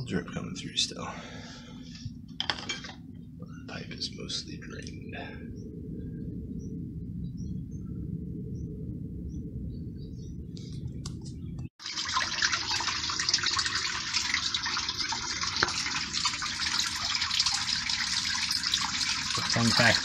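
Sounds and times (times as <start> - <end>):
low rumble: 0.0 - 11.7
water rushing from pool plumbing: 11.8 - 20.0.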